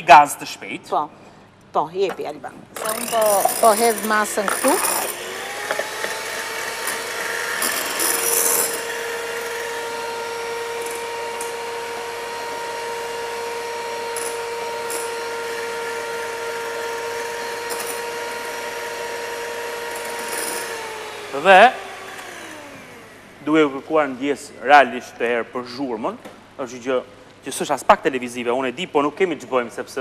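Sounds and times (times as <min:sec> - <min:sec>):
beaters scraping glass bowl: 0:02.8 - 0:06.0, 0:06.8 - 0:08.9
electric hand mixer whining: 0:02.8 - 0:23.4.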